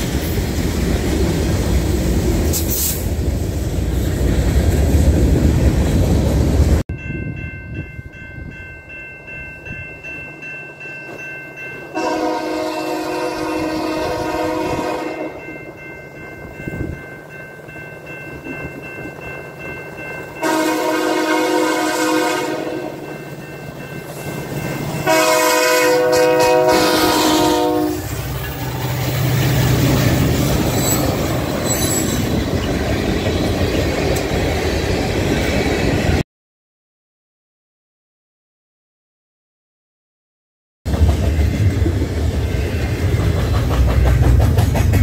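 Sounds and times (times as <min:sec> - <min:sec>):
train rumbling on rails: 0:00.0 - 0:10.2, 0:11.0 - 0:36.2, 0:40.9 - 0:45.0
locomotive air horn: 0:11.9 - 0:15.4, 0:20.4 - 0:23.0, 0:25.0 - 0:28.1.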